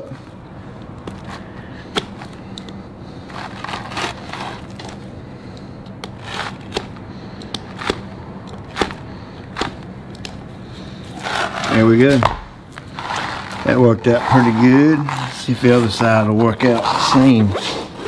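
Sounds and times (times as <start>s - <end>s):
knife slicing through rubber: 6.0s - 9.9s, 11.2s - 16.0s.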